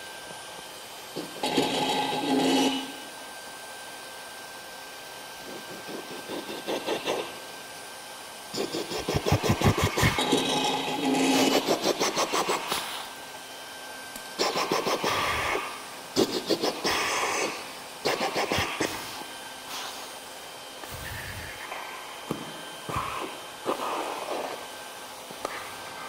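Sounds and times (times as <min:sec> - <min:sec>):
rapid scraping and rattling objects: 0:01.2 - 0:03.0, 0:08.5 - 0:13.0.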